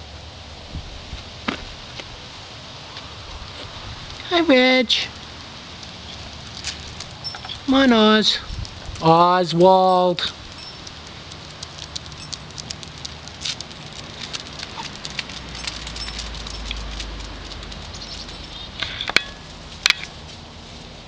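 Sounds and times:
dog claws clicking on concrete: 10.5 - 20.2.

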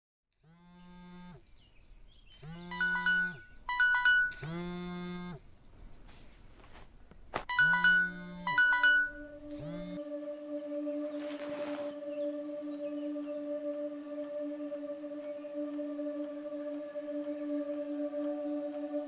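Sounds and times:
phone ringtone chime melody: 2.7 - 4.6, 7.5 - 10.0.

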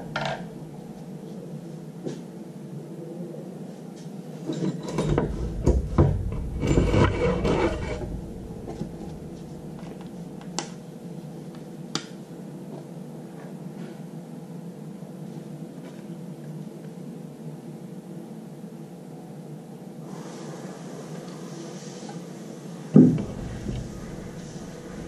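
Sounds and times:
steady low hum: 0.0 - 20.0, 23.0 - 25.0
handling rubbing and scraping: 4.4 - 10.5, 23.2 - 25.0.

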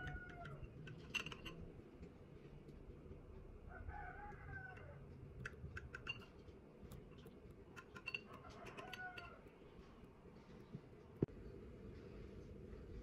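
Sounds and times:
faint chicken calls: 0.0 - 1.0, 3.6 - 5.5, 8.1 - 10.0
knife clicking on ceramic dish: 7.8 - 9.4.

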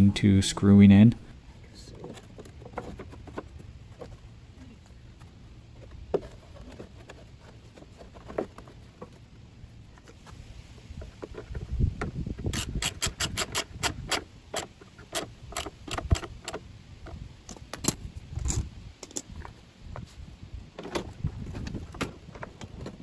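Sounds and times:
socket ratchet clicking: 12.5 - 16.6.

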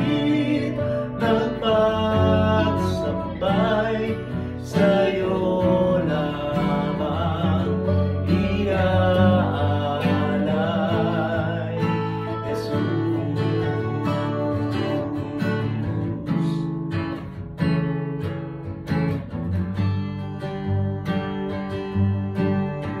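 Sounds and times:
man singing: 0.0 - 16.7
guitars strumming: 0.0 - 23.0.

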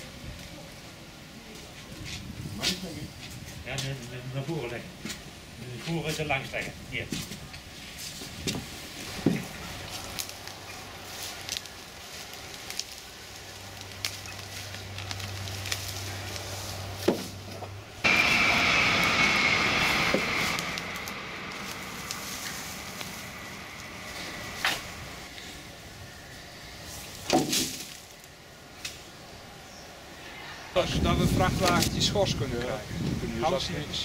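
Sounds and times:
garden tool scraping through mulch: 7.8 - 17.6, 19.8 - 25.3
loud rushing noise with whine: 8.6 - 26.9.

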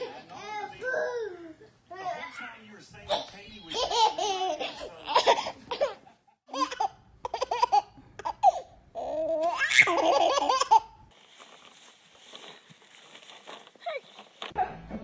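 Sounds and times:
baby laughing: 3.1 - 5.9, 6.5 - 10.9
toddler laughing: 3.2 - 5.5, 6.5 - 10.9.

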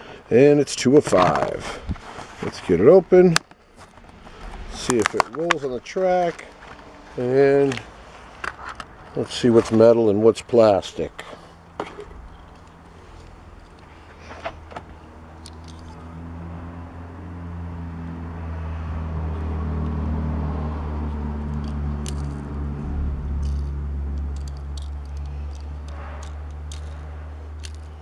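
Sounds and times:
motor vehicle going by: 2.7 - 8.4, 11.4 - 28.0.

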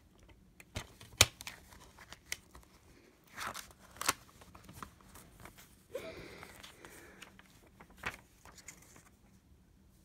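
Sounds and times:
paper rustle: 0.8 - 9.4.

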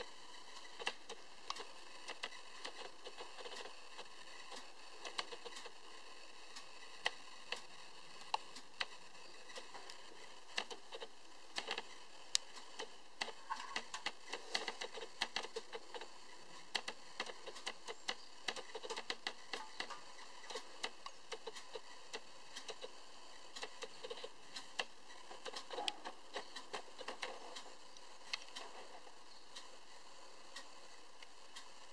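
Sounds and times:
faint steady hiss: 0.0 - 31.9.

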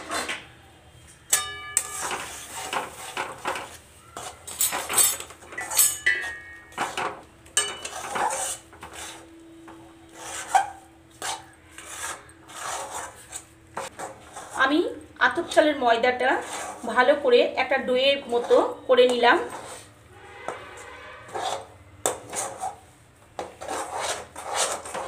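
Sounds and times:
metal spatula scraping wok: 1.2 - 9.3, 10.0 - 17.3, 18.2 - 25.0
ringing metal clank: 1.3 - 2.1, 4.6 - 6.8.

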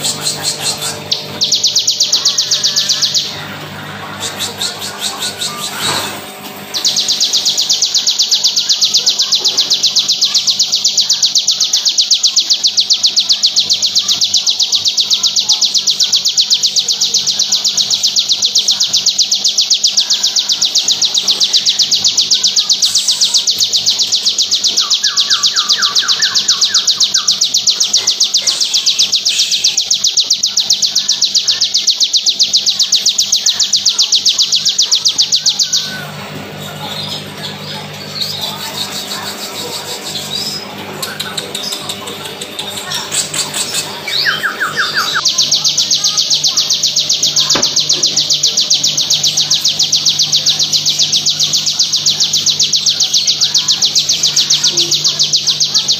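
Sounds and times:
bird trilling rapidly: 0.0 - 3.5, 4.1 - 55.9.

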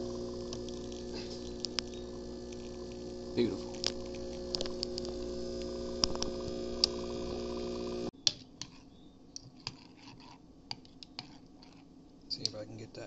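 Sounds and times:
espresso machine pump humming: 0.0 - 8.1
sharp clicks: 0.5 - 2.7
spoon stirring in ceramic cup: 8.5 - 11.9.

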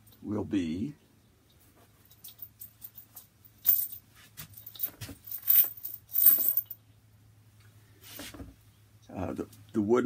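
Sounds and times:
metal parts clinking: 2.1 - 4.0, 4.6 - 6.8.

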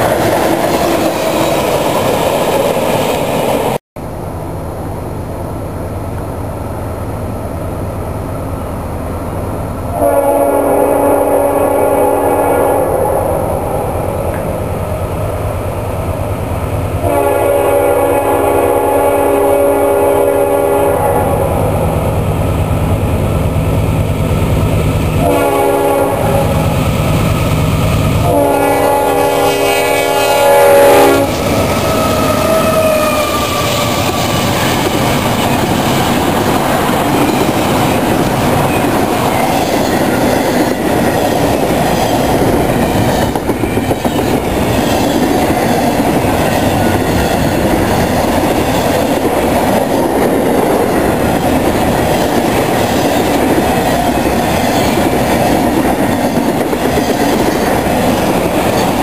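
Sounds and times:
locomotive horn blasts: 9.9 - 14.3, 17.0 - 21.9, 25.2 - 26.6, 28.2 - 31.4.

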